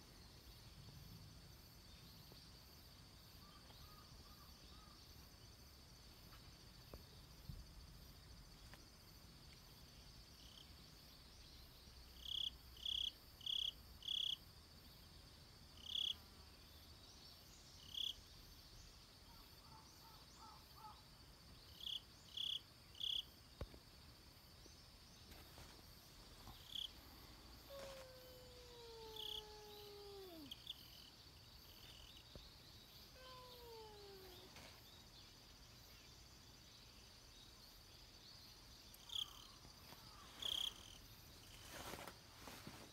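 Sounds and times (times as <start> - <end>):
high insect drone: 0.2 - 19.5, 20.3 - 42.9
long falling calls: 27.7 - 30.6.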